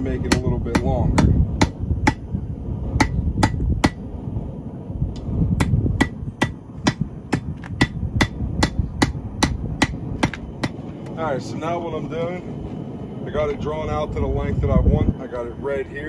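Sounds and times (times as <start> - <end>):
hammer striking steel rod on anvil: 0.2 - 2.3, 3.0 - 4.0, 5.6 - 10.8.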